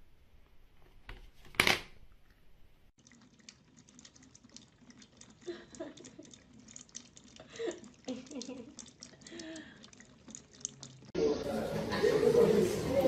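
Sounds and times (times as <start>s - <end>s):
cat lapping water: 3.0s - 11.2s
trickling tap water: 3.0s - 11.2s.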